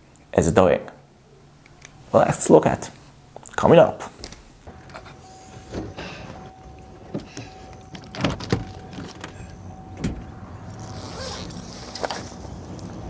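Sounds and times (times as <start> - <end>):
truck bed cover clunking: 4.7 - 10.5.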